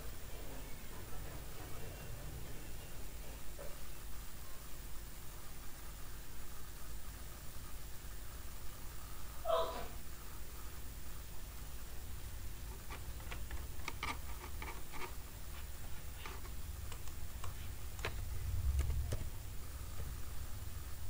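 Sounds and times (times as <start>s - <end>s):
steady low hum: 0.0s - 21.0s
computer keyboard and mouse clicks: 12.7s - 15.2s, 16.2s - 19.3s.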